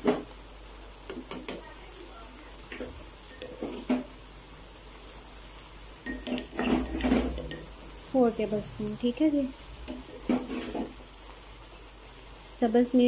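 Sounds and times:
food sizzling: 0:00.0 - 0:13.0
metal spoon scraping metal pan: 0:06.0 - 0:07.8, 0:09.8 - 0:11.0.

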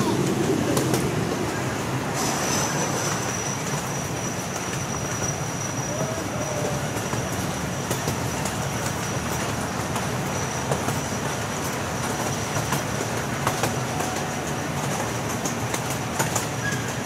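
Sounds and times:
train wheels rumbling: 0:00.0 - 0:17.0.

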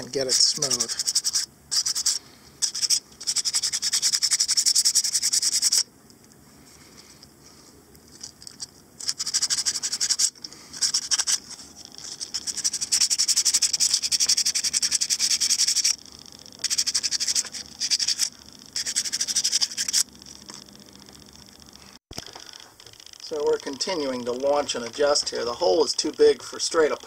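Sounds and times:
sandpaper scratching: 0:00.0 - 0:05.9, 0:09.0 - 0:16.0, 0:16.6 - 0:20.1.

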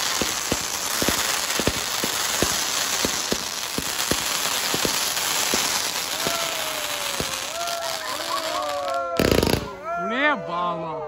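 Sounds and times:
firework pops: 0:00.0 - 0:08.2, 0:09.2 - 0:09.8
crackling hiss of burning sparks: 0:00.0 - 0:09.7.

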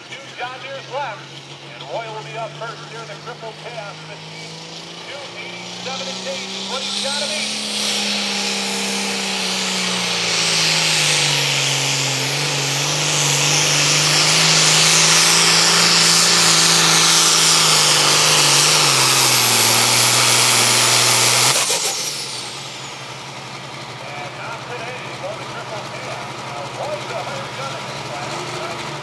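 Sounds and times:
diesel tractor engine flat out: 0:00.0 - 0:29.0
loud high hiss: 0:05.6 - 0:23.3
high turbo whistle: 0:05.6 - 0:23.4.

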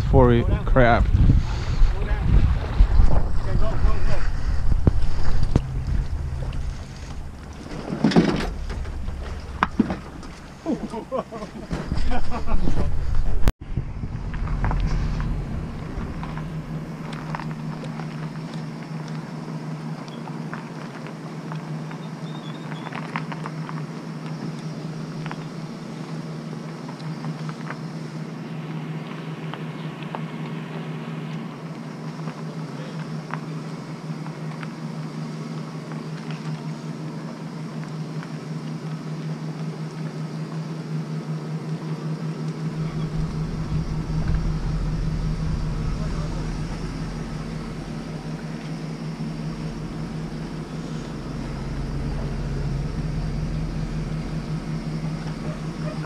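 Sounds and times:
deep rumble: 0:00.0 - 0:21.4, 0:41.8 - 0:56.0
van engine running: 0:00.0 - 0:56.0.

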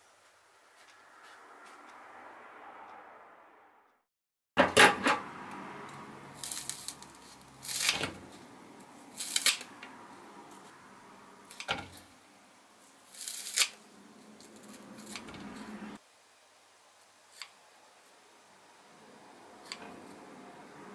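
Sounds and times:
scissors snipping green onion: 0:06.4 - 0:08.0, 0:09.1 - 0:09.7, 0:13.1 - 0:13.8, 0:14.4 - 0:15.6, 0:19.6 - 0:20.2.

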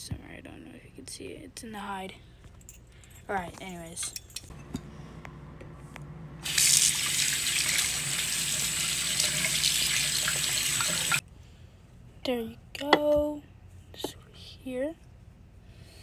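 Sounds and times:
faucet water running into sink: 0:06.4 - 0:11.2
water splashing over dish: 0:06.4 - 0:11.2.

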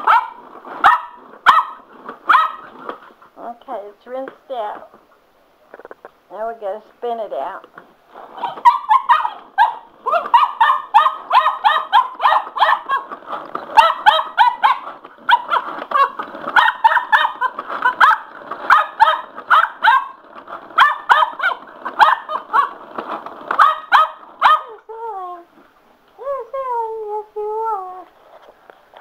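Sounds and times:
puppy barking: 0:00.0 - 0:02.8, 0:08.4 - 0:22.8, 0:23.5 - 0:24.8
dog whining: 0:08.4 - 0:22.8.

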